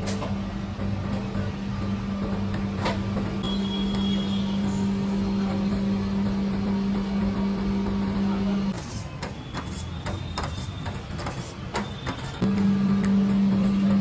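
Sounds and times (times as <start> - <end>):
electric machine hum: 0.3 - 8.8, 12.4 - 14.0.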